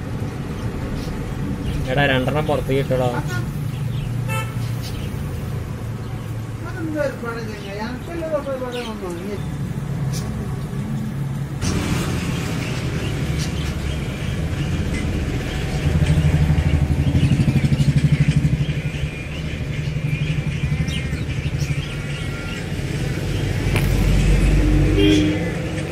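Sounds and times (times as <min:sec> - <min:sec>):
low mechanical drone: 0:11.6 - 0:25.9.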